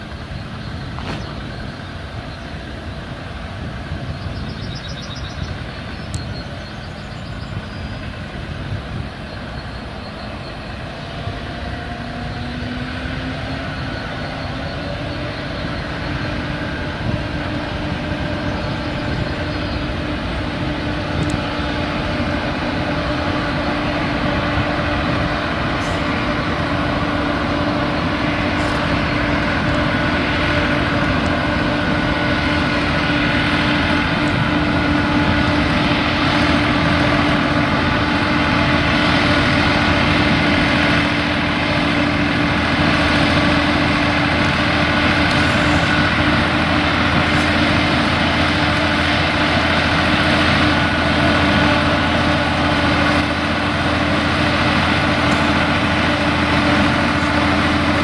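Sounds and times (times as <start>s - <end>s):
diesel locomotive hauling wagons: 0.0s - 58.0s.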